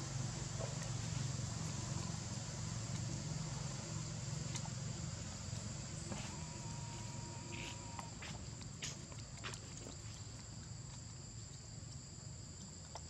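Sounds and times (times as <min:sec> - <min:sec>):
low steady rumble: 0:00.0 - 0:13.0
high-pitched insect drone: 0:05.0 - 0:08.4.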